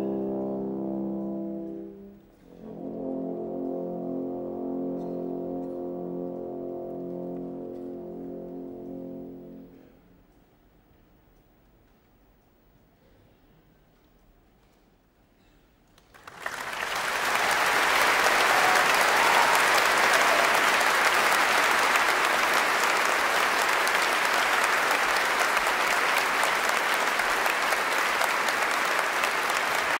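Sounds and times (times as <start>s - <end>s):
audience applause: 16.0s - 30.0s.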